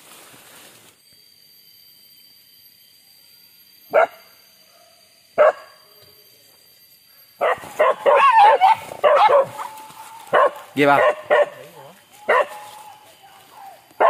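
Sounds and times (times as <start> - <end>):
dogs barking: 5.4 - 5.7, 7.4 - 13.0.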